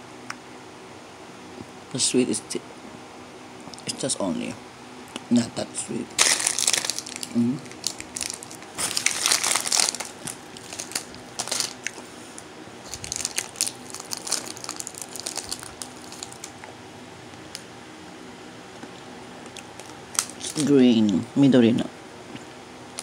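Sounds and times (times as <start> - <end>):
plastic wrapper crinkling: 6.2 - 12.0, 12.8 - 16.6, 19.5 - 20.7.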